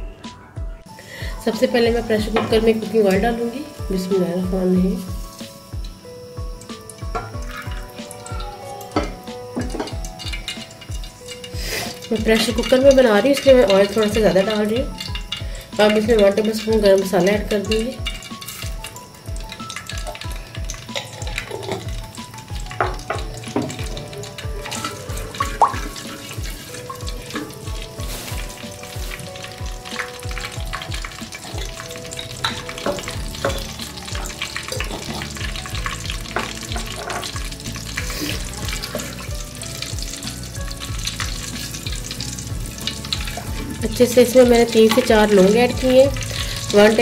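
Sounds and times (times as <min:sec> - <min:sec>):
spices sizzling in hot oil: 0:00.8 - 0:47.0
wooden spatula stirring: 0:22.8 - 0:39.4.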